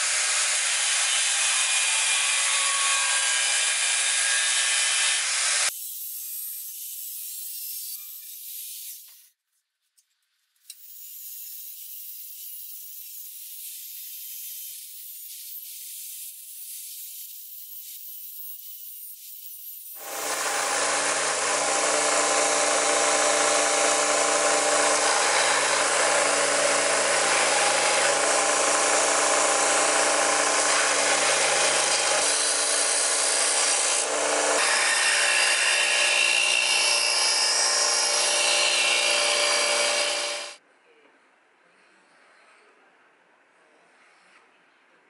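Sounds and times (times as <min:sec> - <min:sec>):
power grinder grinding steel: 0:19.9 - 0:40.6.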